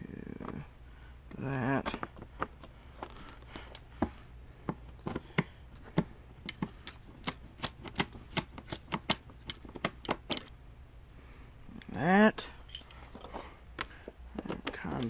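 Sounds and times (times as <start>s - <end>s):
hand tools clicking on bolts: 6.4s - 10.5s.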